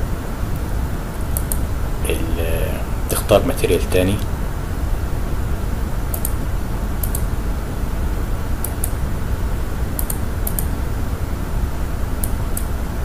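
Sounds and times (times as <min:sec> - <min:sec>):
steady low hum: 0:00.0 - 0:13.0
computer mouse clicking: 0:01.4 - 0:01.6, 0:06.1 - 0:06.4, 0:07.0 - 0:07.3, 0:08.6 - 0:09.0, 0:10.0 - 0:10.7, 0:12.2 - 0:12.7.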